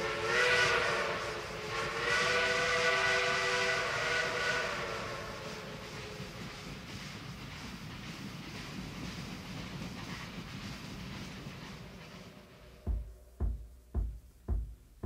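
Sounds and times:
steam locomotive whistle: 0.0s - 6.6s
train running noise: 0.0s - 15.0s.

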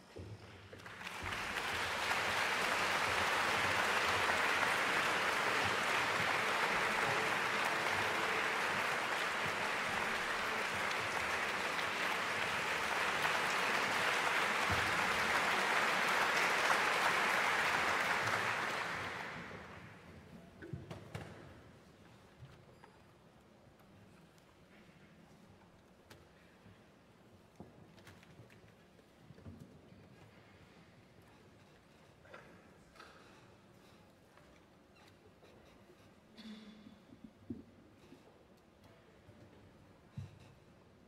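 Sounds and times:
audience applauding: 0.8s - 20.0s.

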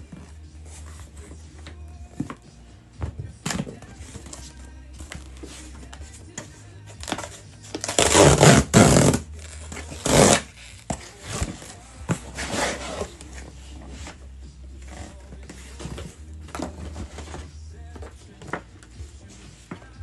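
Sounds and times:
packing tape ripping off cardboard: 6.9s - 13.4s.

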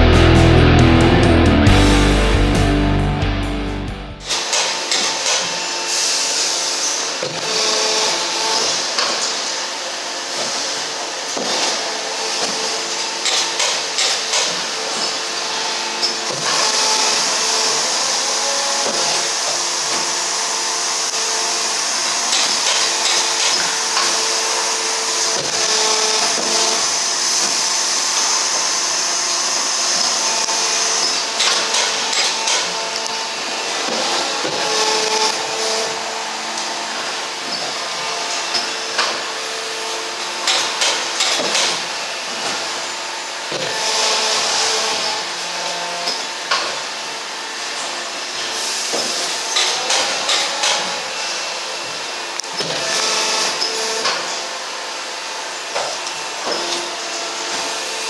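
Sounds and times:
machine humming: 0.0s - 4.4s.

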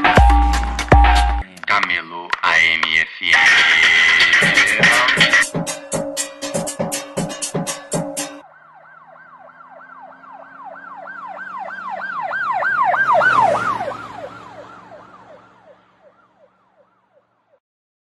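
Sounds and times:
emergency siren wailing: 8.3s - 17.6s.

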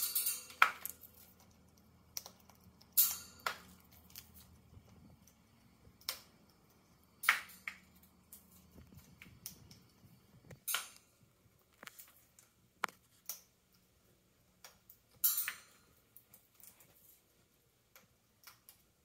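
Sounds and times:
parrot cracking corn kernels: 0.0s - 13.9s.

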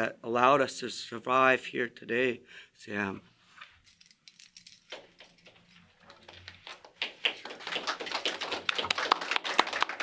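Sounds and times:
audience applause: 6.6s - 10.0s.

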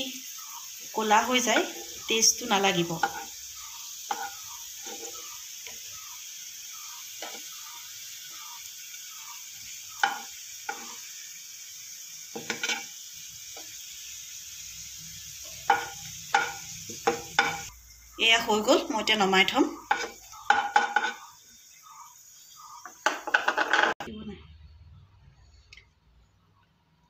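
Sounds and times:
onions sizzling in oil: 0.0s - 24.0s
wooden spatula scraping pan: 4.1s - 5.3s, 19.9s - 21.3s.

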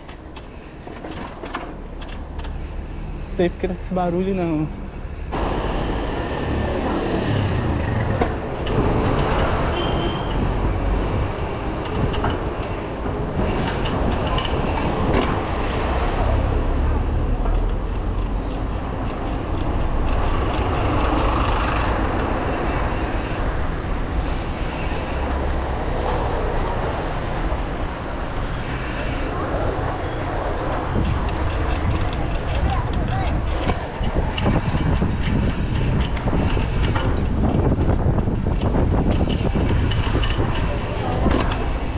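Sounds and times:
bike clicks and rattles: 0.0s - 23.4s, 28.3s - 41.9s
bike tyre and road noise: 0.0s - 41.9s
wind on microphone: 29.2s - 41.9s.

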